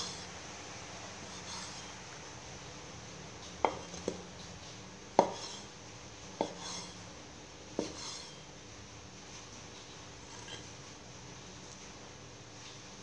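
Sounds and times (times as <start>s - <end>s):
cleaver knocking on wooden board: 3.6s - 4.2s, 5.2s - 5.5s.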